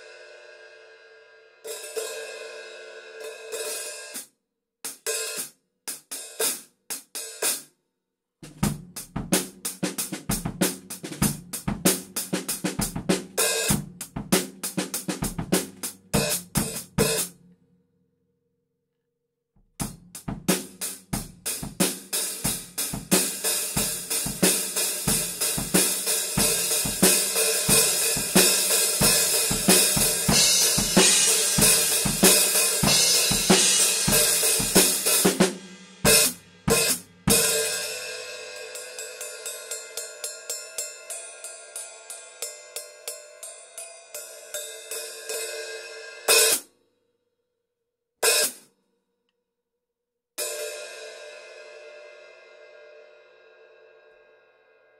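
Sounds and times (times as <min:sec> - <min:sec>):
hi-hat cymbals played with drumstick: 0:04.9 - 0:07.6, 0:08.5 - 0:17.4, 0:19.8 - 0:46.7, 0:48.2 - 0:48.7.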